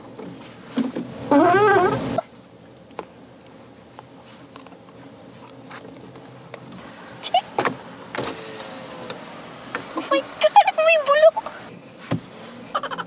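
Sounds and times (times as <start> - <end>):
car cabin hum: 4.8 - 12.7
person laughing: 12.7 - 13.0.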